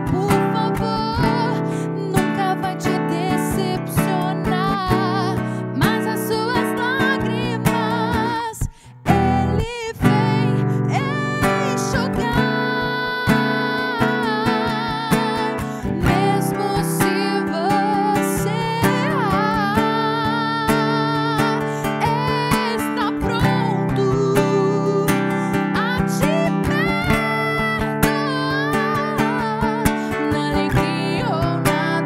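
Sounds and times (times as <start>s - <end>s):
classical guitar: 0.0s - 32.0s
woman singing with vibrato: 0.0s - 32.0s.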